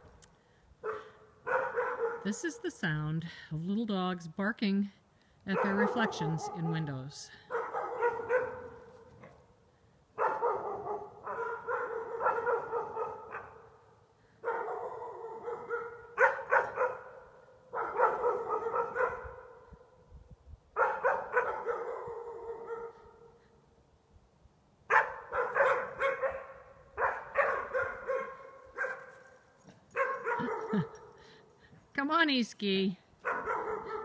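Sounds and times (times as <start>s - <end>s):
small dogs barking: 0.8s - 2.4s, 5.5s - 9.1s, 10.2s - 13.8s, 14.4s - 19.6s, 20.8s - 23.1s, 24.9s - 29.3s, 29.9s - 31.1s, 33.2s - 34.0s.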